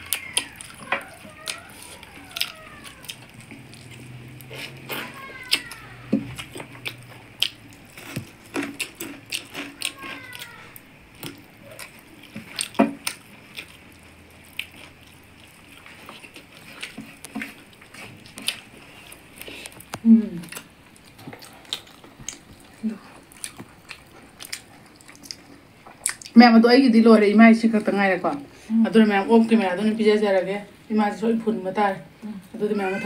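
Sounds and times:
fingers mixing rice on steel plates: 0.0s - 13.8s, 14.6s - 24.6s
wet chewing and lip smacks: 0.0s - 26.4s.

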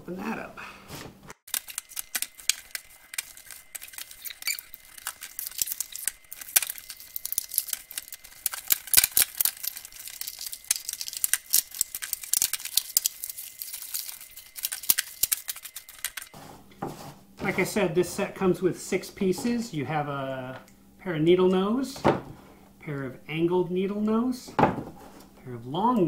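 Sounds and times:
stiff plastic crackling and tearing: 1.4s - 16.4s.

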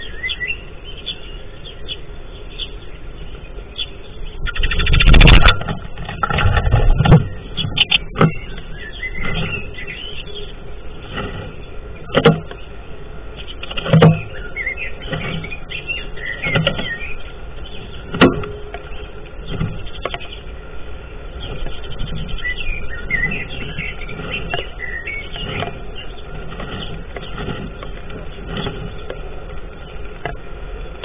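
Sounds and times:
bird rustling nest material: 4.5s - 31.0s.

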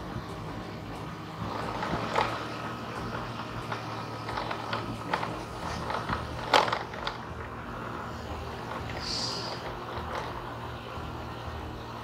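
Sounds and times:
vehicle running drone: 0.0s - 12.0s
rattling knocks and clicks: 1.0s - 7.6s, 8.6s - 10.5s.

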